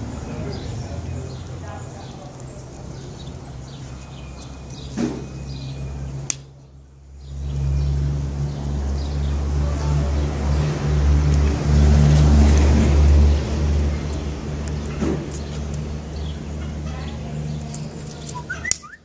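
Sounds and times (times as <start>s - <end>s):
low engine rumble: 0.0s - 19.0s.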